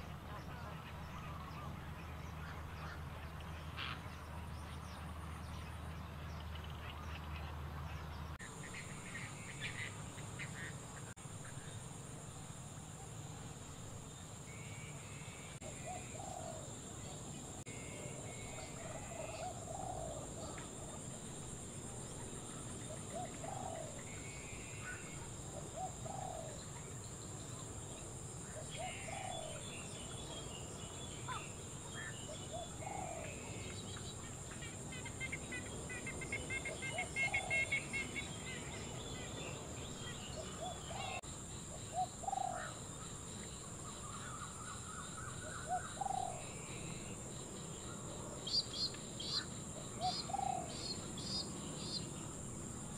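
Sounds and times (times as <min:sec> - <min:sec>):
steady high hiss: 0:08.4 - 0:52.9
bird cooing: 0:15.6 - 0:16.7, 0:17.9 - 0:20.9, 0:22.9 - 0:24.0, 0:24.9 - 0:26.8, 0:28.6 - 0:29.8, 0:32.3 - 0:33.7, 0:36.4 - 0:38.6, 0:40.1 - 0:41.2, 0:41.9 - 0:42.8, 0:44.2 - 0:46.6, 0:49.3 - 0:52.0
bird chirps: 0:47.8 - 0:52.2.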